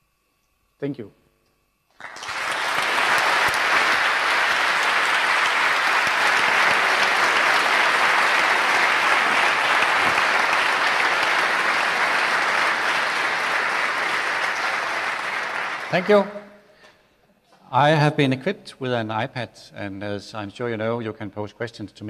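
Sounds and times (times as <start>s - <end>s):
audience applauding: 1.9s - 16.4s.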